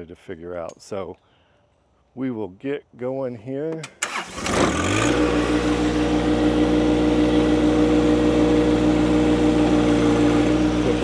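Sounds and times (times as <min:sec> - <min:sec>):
tractor diesel engine running: 0:04.0 - 0:11.0.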